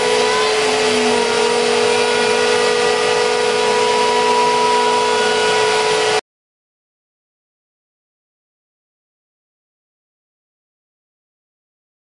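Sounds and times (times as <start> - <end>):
dust extraction vacuum rushing: 0.0 - 6.2
router spindle whining: 0.0 - 6.2.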